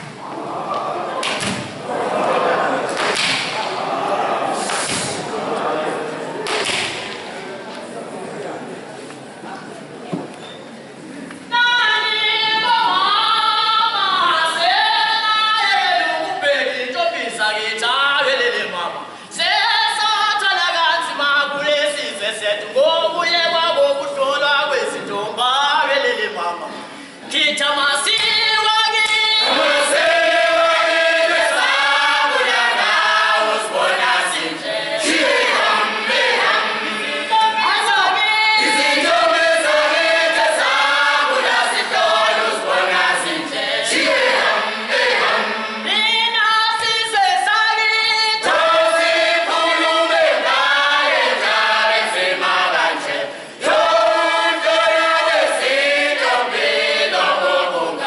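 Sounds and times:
group of voices singing: 0:28.0 - 0:58.0.

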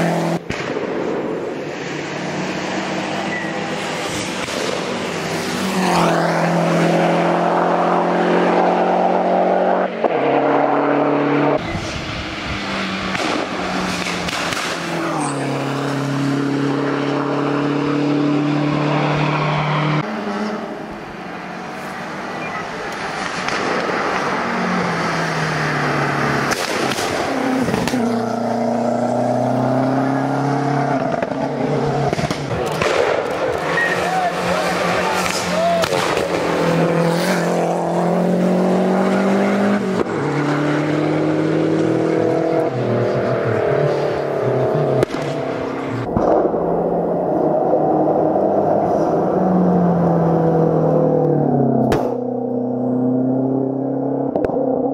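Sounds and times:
car engine at high revs: 0:00.0 - 0:54.9
distant rally car engine: 0:00.0 - 0:54.9.

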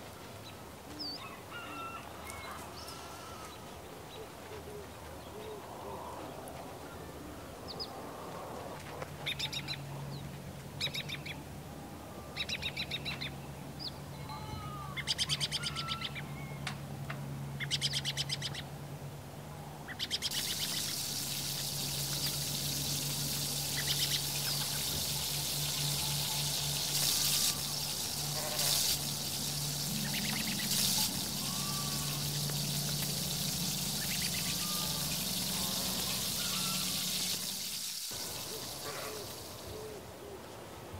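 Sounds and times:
birds chirping in rapid trills: 0:19.9 - 0:40.0
hot oil sizzling: 0:20.3 - 0:39.6.

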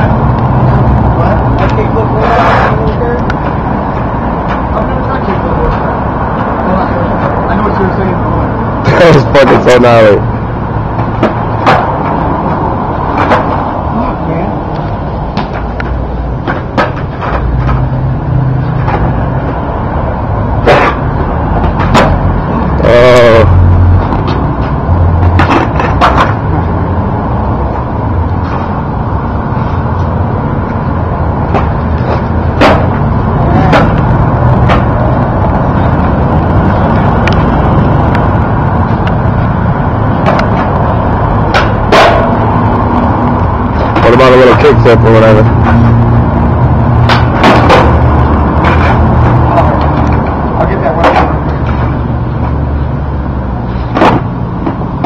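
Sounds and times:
road traffic: 0:00.0 - 0:55.0.

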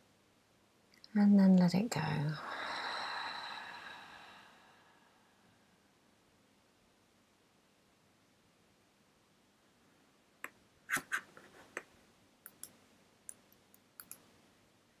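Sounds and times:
sharp clicks and light taps: 0:11.7 - 0:14.3.

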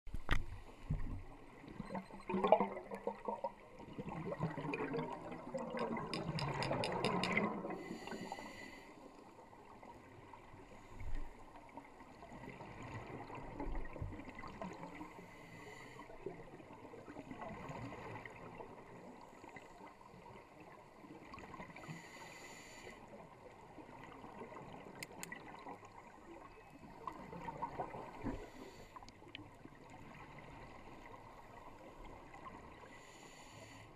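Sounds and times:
regulator exhaust bubbles gurgling: 0:01.0 - 0:07.8.

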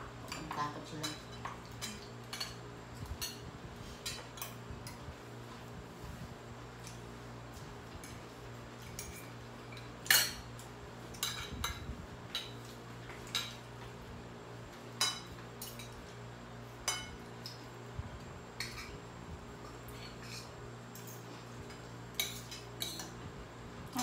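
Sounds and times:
steady low hum: 0:00.0 - 0:24.0
cutlery clinking on plates: 0:08.8 - 0:13.7, 0:14.9 - 0:16.0, 0:16.8 - 0:17.6, 0:20.0 - 0:23.2.

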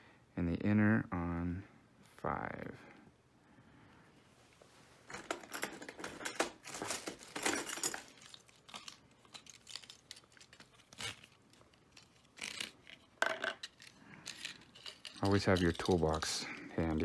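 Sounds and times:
hand tools rattling: 0:05.1 - 0:08.7, 0:11.9 - 0:17.0
metal tools clicking: 0:12.0 - 0:16.5.

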